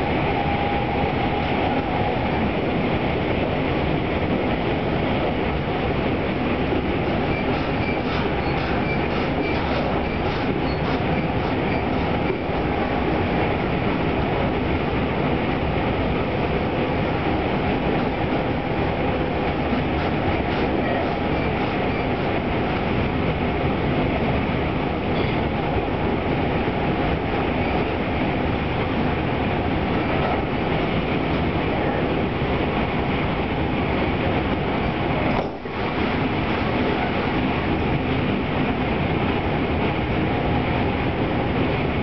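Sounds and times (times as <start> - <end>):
train wheels rumbling on rail: 0.0 - 42.0
rail-joint clacks: 6.7 - 14.4, 16.4 - 26.1, 26.9 - 33.3, 33.9 - 38.8.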